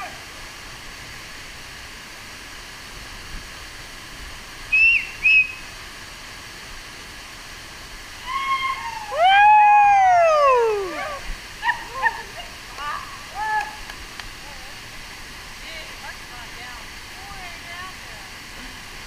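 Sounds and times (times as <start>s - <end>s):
waterfall pouring into pool: 0.0s - 19.0s
high whistles: 4.7s - 5.7s
long gliding whistled call: 4.7s - 5.7s.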